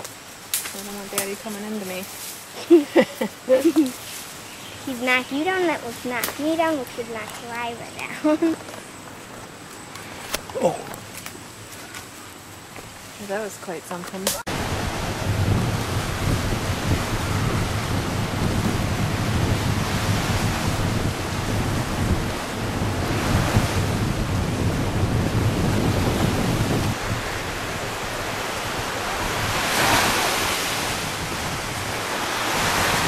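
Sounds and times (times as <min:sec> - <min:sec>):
wind rumbling on microphone: 0:00.0 - 0:11.7, 0:12.4 - 0:33.0
ocean surf breaking: 0:14.3 - 0:33.0.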